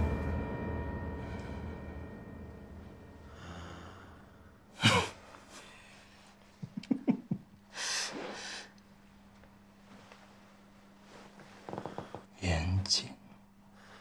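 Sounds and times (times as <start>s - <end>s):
man chuckling: 6.6s - 7.6s.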